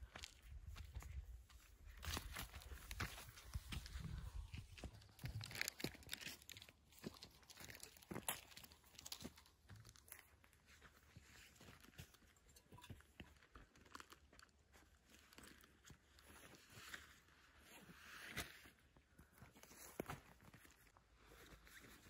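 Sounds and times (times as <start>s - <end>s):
footsteps on dry stubble: 0.0s - 12.4s.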